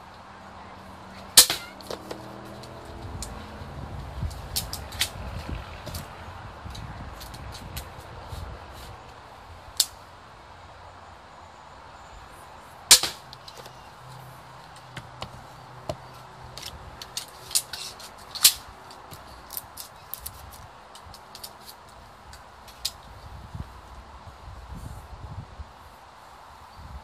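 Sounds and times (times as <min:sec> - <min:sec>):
crossbow shot snap: 0:12.9 - 0:13.2.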